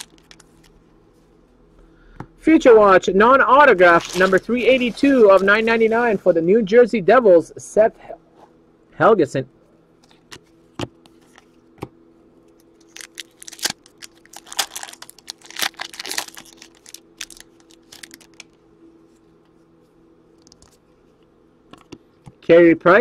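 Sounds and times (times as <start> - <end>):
foil wrapper crinkling and tearing: 0.0 - 0.8, 3.7 - 6.1, 12.8 - 18.6.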